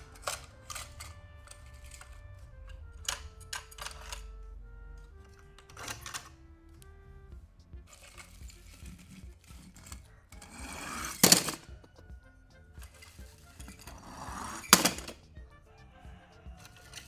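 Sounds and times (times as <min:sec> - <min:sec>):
toy cars rolling on plastic: 0:00.0 - 0:04.4, 0:05.1 - 0:06.4, 0:07.9 - 0:12.0, 0:12.7 - 0:15.2, 0:16.5 - 0:17.0
sharp clack: 0:07.6 - 0:15.4.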